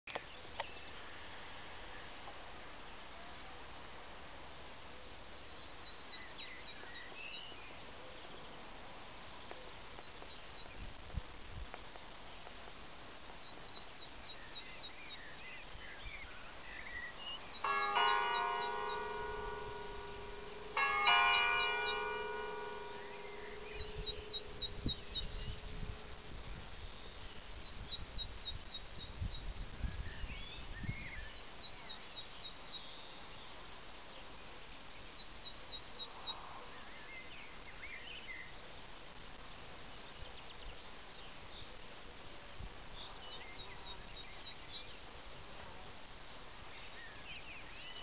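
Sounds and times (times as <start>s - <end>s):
birds chirping softly: 11.6s - 48.0s
church bell ringing: 17.6s - 26.2s.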